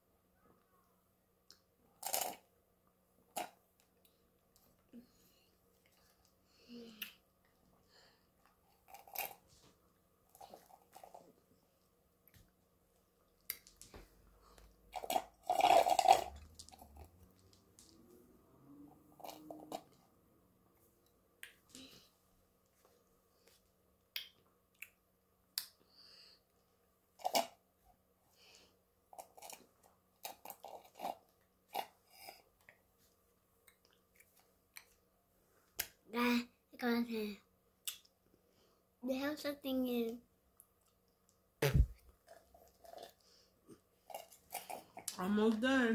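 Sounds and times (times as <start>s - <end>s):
slurp through a straw: 15.0s - 17.3s
mouth noises: 41.6s - 42.0s.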